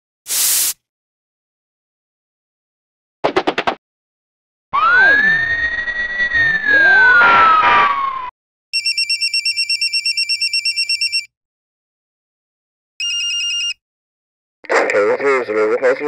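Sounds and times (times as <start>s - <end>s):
fire engine siren: 4.8s - 8.3s
trilling telephone ring: 8.8s - 11.3s, 13.0s - 13.8s.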